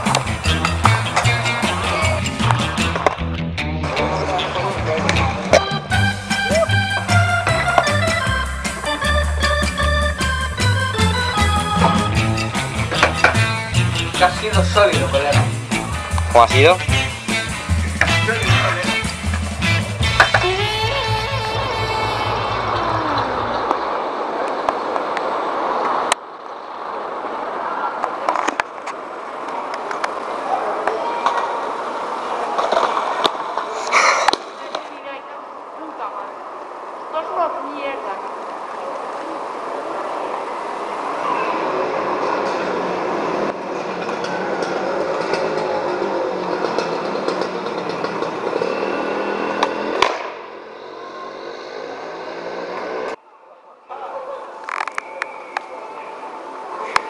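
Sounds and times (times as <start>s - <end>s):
skateboard clacks: 0.0s - 3.4s, 5.0s - 26.3s, 28.0s - 34.9s, 42.1s - 48.9s, 49.6s - 50.4s
skateboard wheels rolling on paving: 0.0s - 3.4s, 4.1s - 53.2s
background music: 0.0s - 23.7s
street traffic noise: 0.0s - 57.0s
skateboard cracking on ground: 30.9s - 34.9s.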